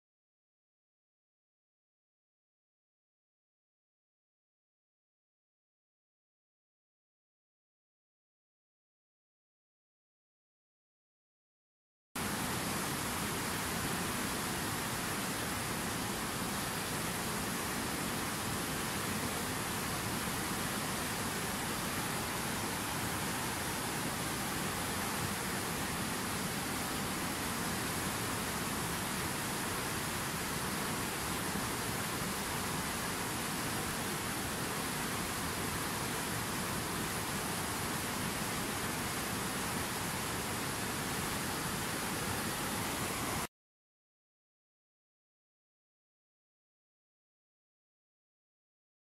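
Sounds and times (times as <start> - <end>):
river rapids rushing over rocks: 12.2 - 43.5.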